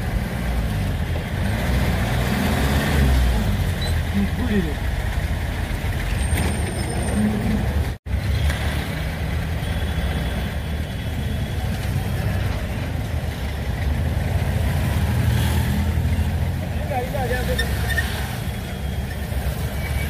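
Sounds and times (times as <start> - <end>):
road noise: 0.0 - 20.0
vehicle engine rumble: 0.0 - 20.0.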